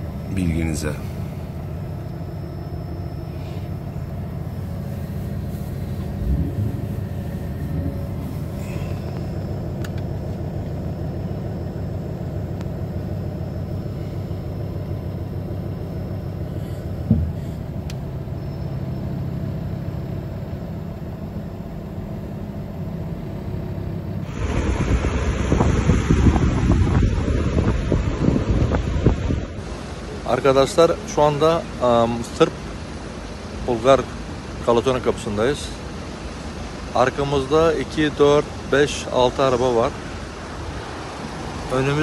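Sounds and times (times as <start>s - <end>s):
car engine rumbling: 0.0s - 42.0s
short knock: 17.1s - 17.6s
wind buffeting microphone: 24.3s - 29.6s.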